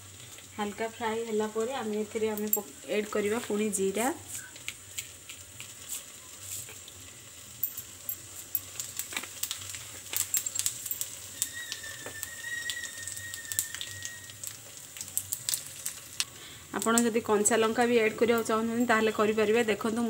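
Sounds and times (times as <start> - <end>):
oil crackling and popping: 0.0 - 20.0
seeds sizzling in hot oil: 0.0 - 20.0
faint thin whistle-like tone: 4.2 - 4.6, 11.3 - 14.4.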